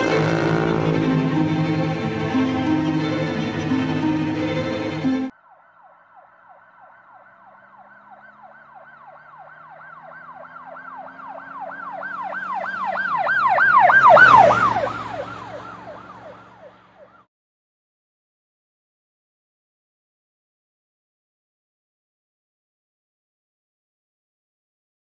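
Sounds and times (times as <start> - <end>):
low vehicle rumble: 0.0 - 17.2
siren yelping: 0.0 - 17.3.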